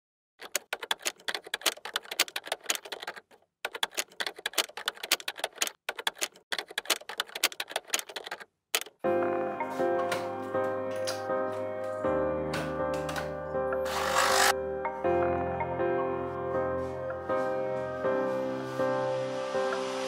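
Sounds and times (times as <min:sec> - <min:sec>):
rapid keyboard key clicks: 0:00.4 - 0:09.0.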